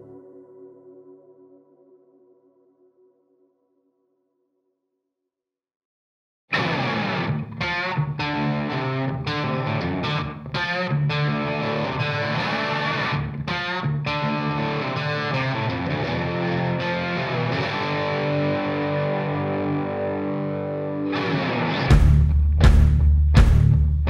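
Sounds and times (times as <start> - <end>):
distorted electric guitar rock music: 6.5 - 24.0.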